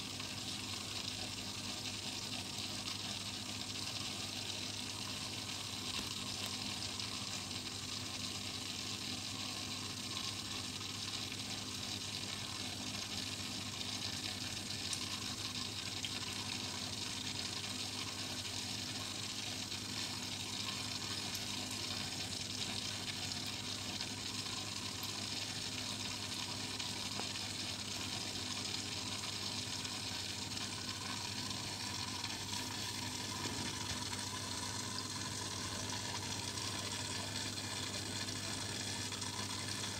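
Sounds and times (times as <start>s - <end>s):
aquarium filter water trickling: 0.0s - 39.9s.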